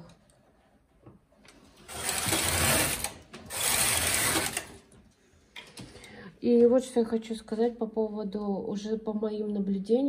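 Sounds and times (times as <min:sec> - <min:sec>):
knitting machine carriage rattling: 0:01.8 - 0:04.8.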